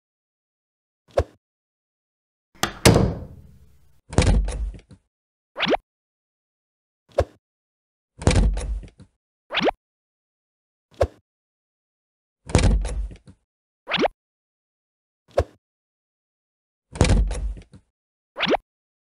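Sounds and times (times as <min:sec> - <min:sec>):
plastic toy doors banging: 0:02.6 - 0:03.6.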